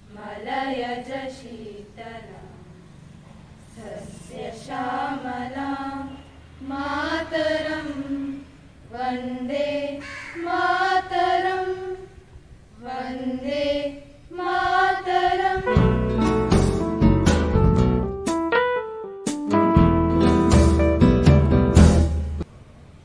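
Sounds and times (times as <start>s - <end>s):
girls singing unaccompanied: 0.0s - 16.2s.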